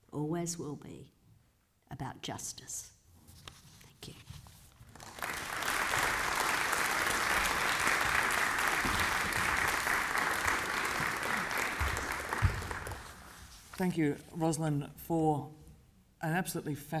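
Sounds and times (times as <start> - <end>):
audience applauding: 4.9 - 13.4.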